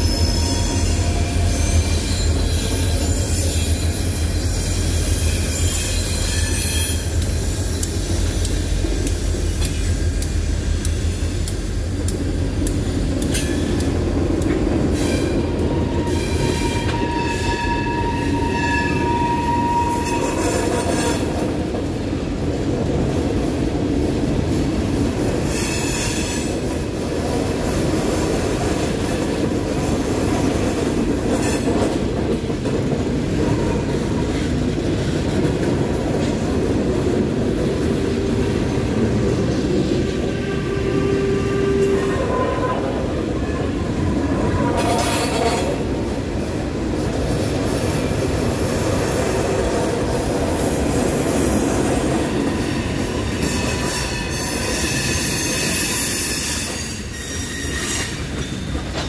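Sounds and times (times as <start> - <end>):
squealing wheels: 0.0 - 10.2, 14.9 - 21.3, 52.4 - 59.0
train wheels rumbling on rail: 0.0 - 59.0.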